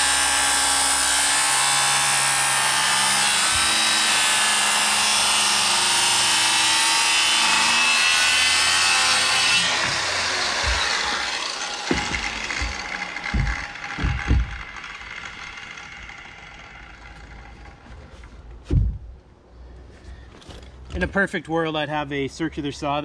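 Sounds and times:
circular saw cutting timber: 0.0s - 18.4s
knocks: 9.6s - 14.8s.

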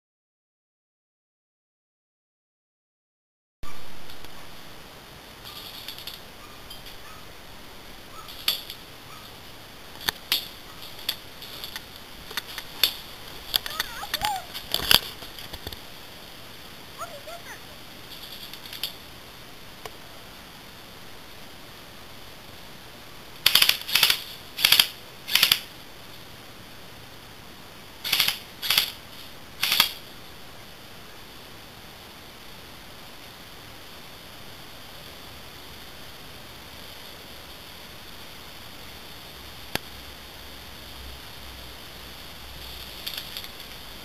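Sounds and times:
airsoft gun shots: 23.4s - 25.7s, 28.0s - 29.0s, 29.6s - 30.0s.

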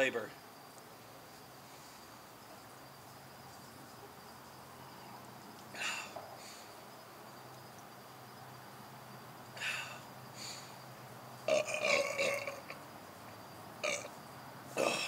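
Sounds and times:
man belching: 11.5s - 12.8s, 13.8s - 14.1s, 14.8s - 15.0s.

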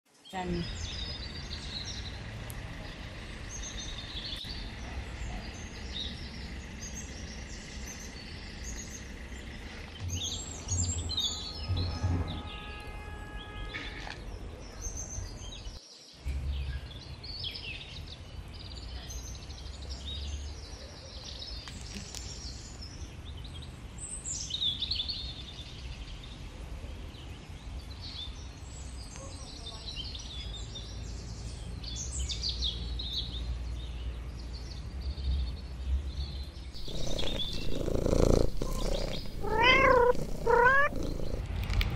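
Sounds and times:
small birds chirping: 0.2s - 11.6s, 36.2s - 41.5s.

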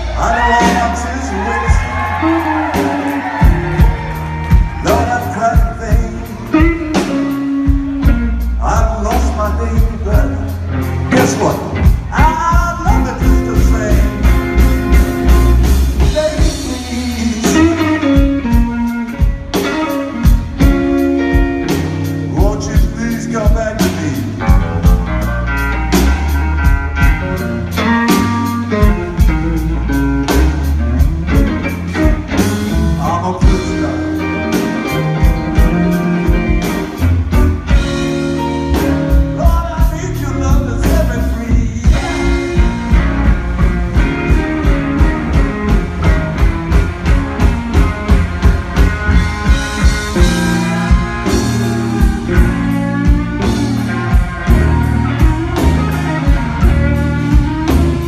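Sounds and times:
live blues-rock band playing: 0.0s - 58.0s.

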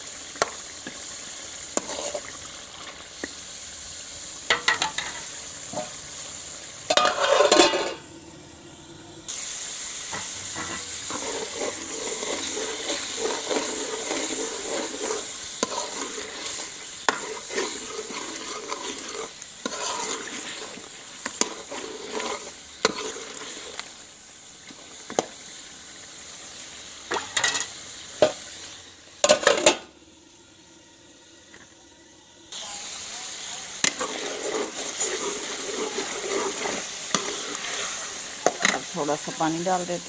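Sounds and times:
food sizzling in a pot: 0.0s - 40.0s
metal spoon scraping a pot: 1.8s - 2.3s, 6.9s - 8.0s, 10.1s - 23.8s, 33.8s - 38.9s.

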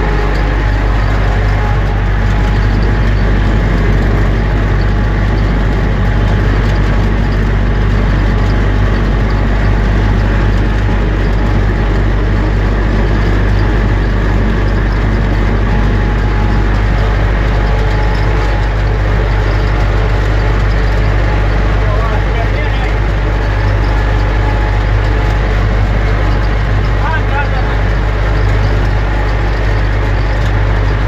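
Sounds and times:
tractor diesel engine droning: 0.0s - 31.0s.

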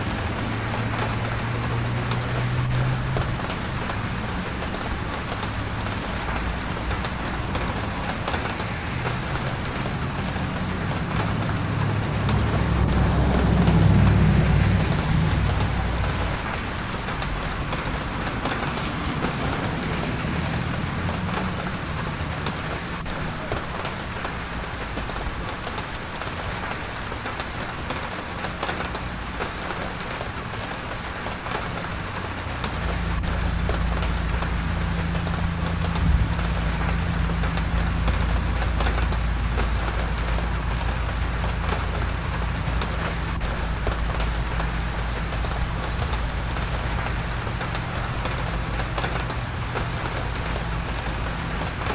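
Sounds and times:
steady rain: 0.0s - 51.9s
low rumble: 6.2s - 18.4s.

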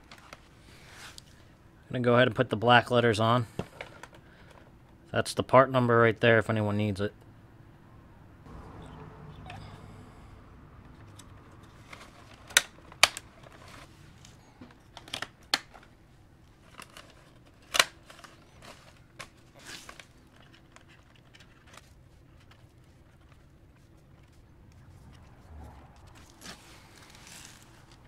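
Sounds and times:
paper crinkling: 11.1s - 28.0s.

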